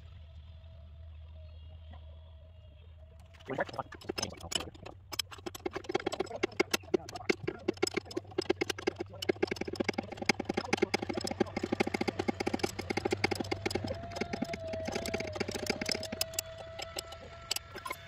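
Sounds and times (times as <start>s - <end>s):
low hum: 0.0s - 18.0s
hand ratchet clicking: 3.9s - 18.0s.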